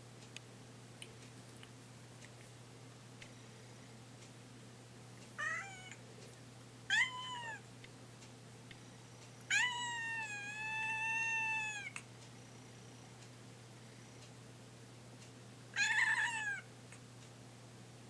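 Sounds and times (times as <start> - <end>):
cat meowing: 5.4 - 6.0, 6.9 - 7.6, 9.5 - 12.0, 15.8 - 16.7.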